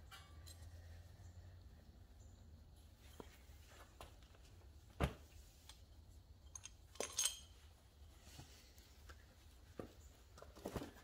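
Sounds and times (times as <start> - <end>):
metal parts clinking: 6.4 - 7.7.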